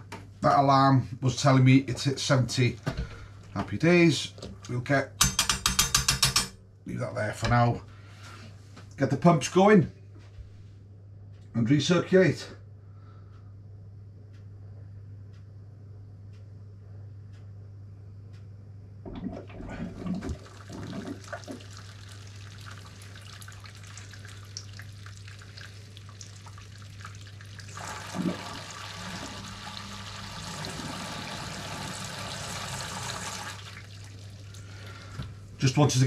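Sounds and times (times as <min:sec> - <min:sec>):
equipment knocks and clicks: 0:05.2 - 0:06.6
liquid flowing: 0:19.1 - 0:35.2
pump running: 0:19.1 - 0:35.3.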